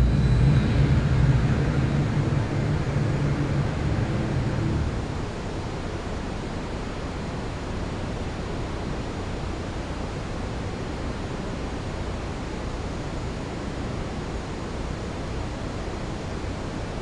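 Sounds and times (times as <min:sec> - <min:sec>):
low rumble: 0:00.0 - 0:06.1
hiss-like background noise: 0:00.0 - 0:17.0.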